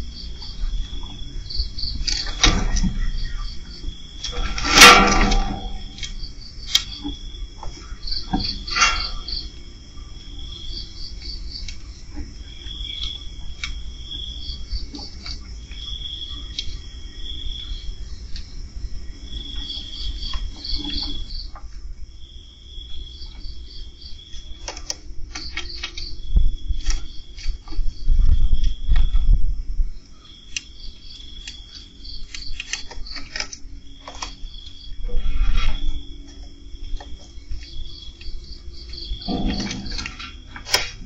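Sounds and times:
crickets chirping: 0.0s - 41.0s.

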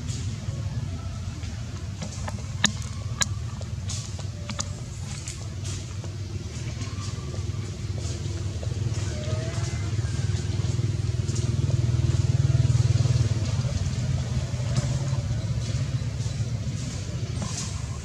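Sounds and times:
engine running with pulsing hum: 0.0s - 18.0s.

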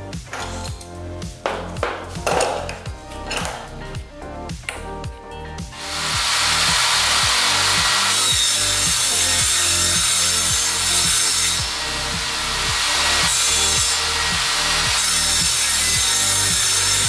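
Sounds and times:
background music with steady beat: 0.0s - 17.0s
table saw cutting wood: 5.7s - 17.0s.

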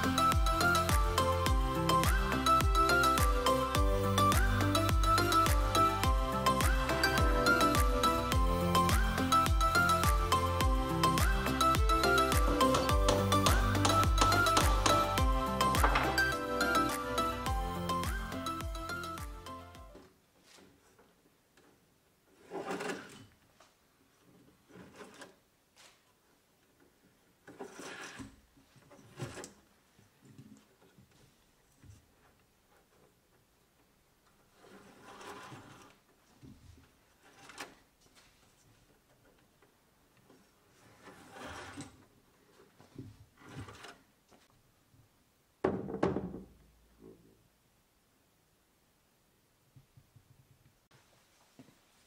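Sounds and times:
twine rustling scrapes: 27.5s - 29.7s, 34.5s - 36.0s, 40.4s - 44.5s.

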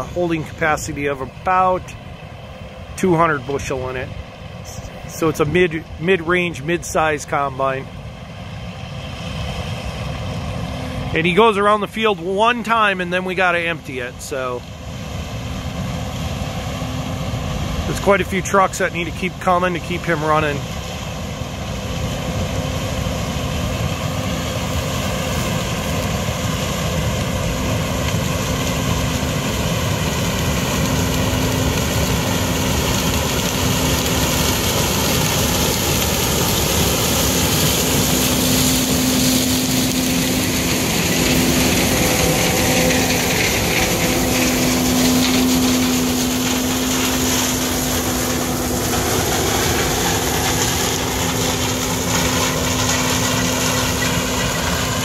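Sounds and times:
combine harvester machine drone: 0.0s - 55.0s.

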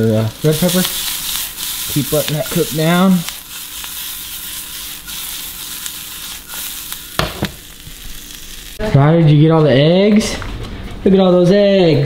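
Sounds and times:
vegetables sizzling in skillet: 0.0s - 8.9s.

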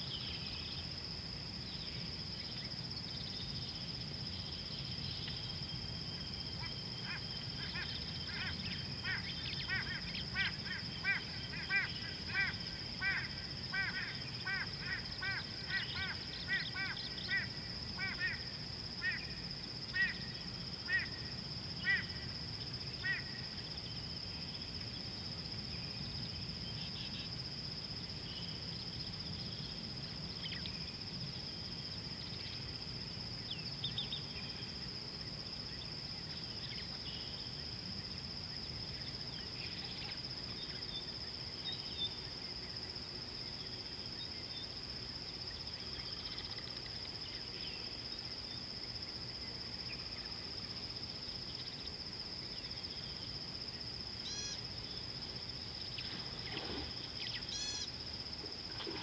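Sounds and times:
insects trilling: 0.0s - 59.0s.

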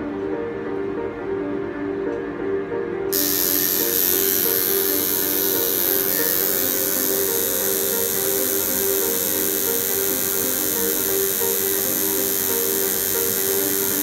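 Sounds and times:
tattoo machine buzzing: 3.1s - 14.0s.

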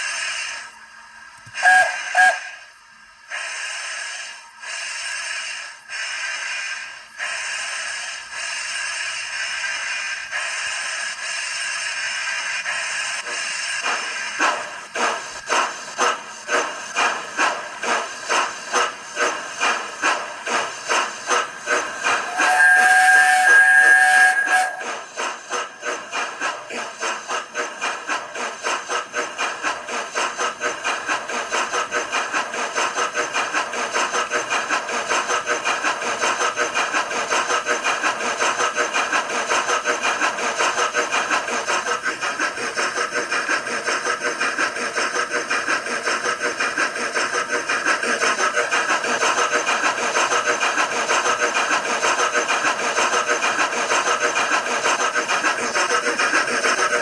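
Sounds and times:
steam locomotive chuffing from small speaker: 0.0s - 57.0s.

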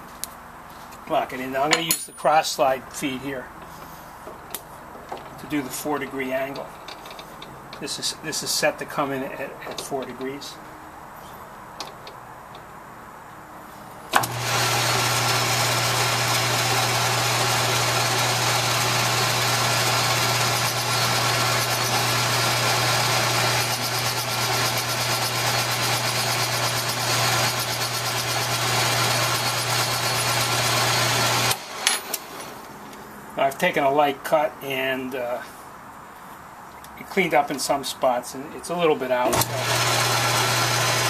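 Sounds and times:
metal lathe running: 14.2s - 32.4s, 39.3s - 41.0s
cutting tool on cast iron: 17.4s - 32.5s.

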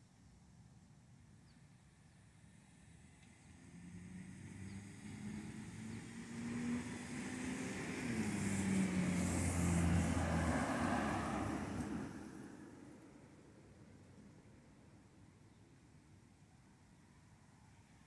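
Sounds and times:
car driving past: 3.4s - 12.8s.

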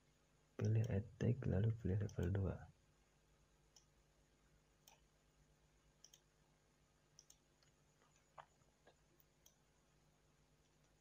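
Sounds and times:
computer mouse clicks: 4.8s - 5.1s, 6.0s - 6.3s, 7.2s - 8.3s, 8.9s - 9.6s.

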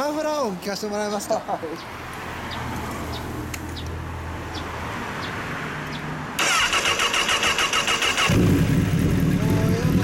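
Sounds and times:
motorcycle starter cranking: 6.4s - 9.6s.

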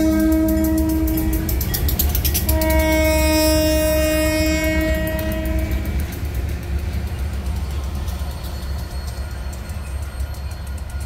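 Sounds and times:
locomotive air horn blasts: 0.0s - 1.5s, 2.4s - 5.9s.

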